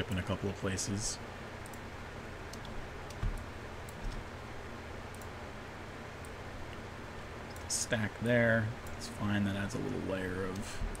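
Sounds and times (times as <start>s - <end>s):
steady low hum: 0.0s - 11.0s
computer mouse and keyboard clicks: 2.5s - 4.3s, 10.4s - 11.0s.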